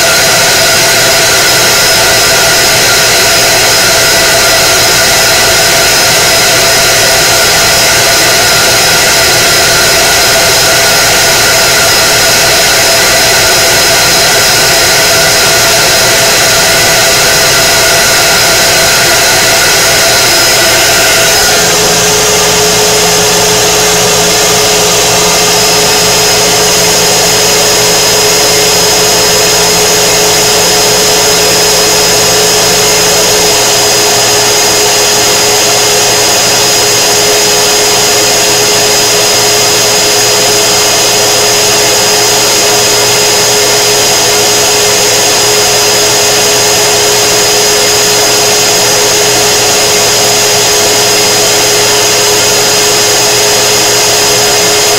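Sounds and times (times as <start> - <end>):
fans and pump whirring: 0.0 - 54.9
mid-pitched motor tones: 0.0 - 54.9
thin high whine: 0.0 - 54.9
low hum: 6.9 - 33.7.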